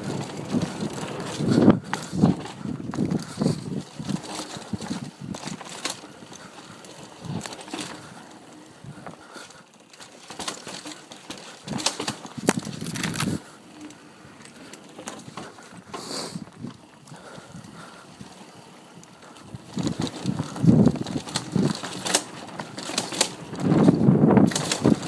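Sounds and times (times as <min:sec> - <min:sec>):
bike rattling and knocking: 0:00.0 - 0:25.0
bike tyres on dirt: 0:00.0 - 0:25.0.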